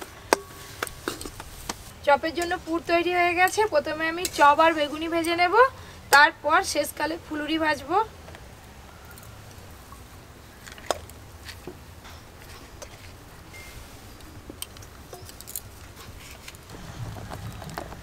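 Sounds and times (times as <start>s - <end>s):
low background rumble: 16.7s - 18.0s.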